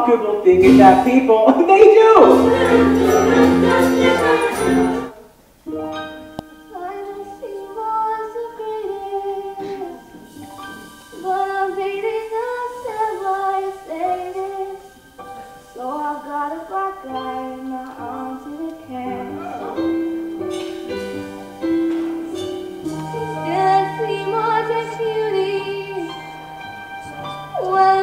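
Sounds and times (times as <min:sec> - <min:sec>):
live instrumental accompaniment: 0:00.5 - 0:01.4, 0:02.2 - 0:05.1, 0:17.2 - 0:28.0
woman singing: 0:02.2 - 0:05.1, 0:06.7 - 0:10.3, 0:11.2 - 0:14.9, 0:15.8 - 0:20.0, 0:22.3 - 0:26.3, 0:27.5 - 0:28.0.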